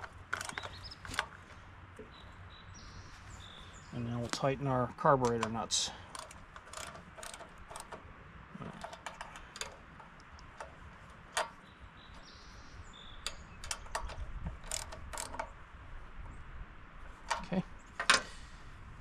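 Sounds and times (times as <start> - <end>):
hand ratchet clicking: 0.0 - 1.3, 5.4 - 8.0, 8.7 - 11.6, 13.2 - 15.5
metallic clicks: 0.0 - 1.4, 5.2 - 15.6.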